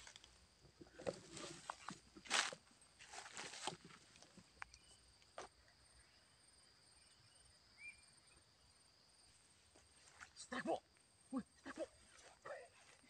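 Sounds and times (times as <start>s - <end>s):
rustle of grass and brush: 0.0s - 5.6s
faint insect hum: 0.0s - 13.0s.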